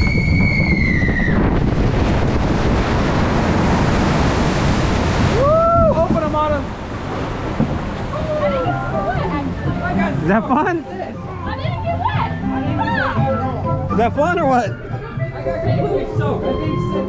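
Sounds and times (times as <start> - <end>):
long high whoop: 0.0 - 1.5, 5.2 - 6.1
wind rush on microphone: 0.0 - 10.3.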